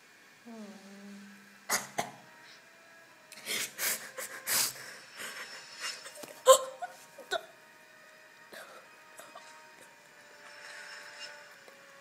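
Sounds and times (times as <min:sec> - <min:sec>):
girl crying: 0:06.0 - 0:07.5.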